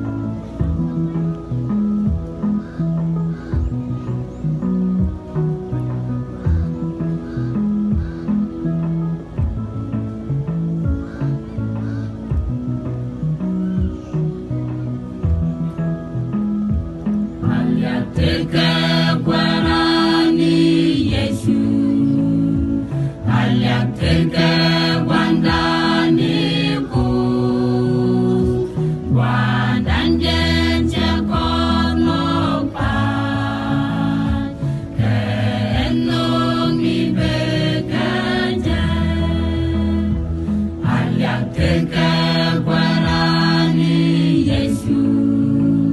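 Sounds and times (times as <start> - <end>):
mixed choir singing in harmony: 17.4 - 45.9.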